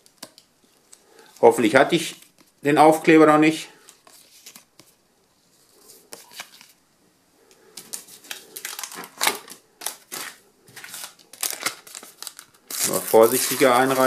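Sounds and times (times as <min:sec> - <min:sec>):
packet crackling: 0:07.8 - 0:14.0
sticker packets crinkling: 0:07.8 - 0:14.0.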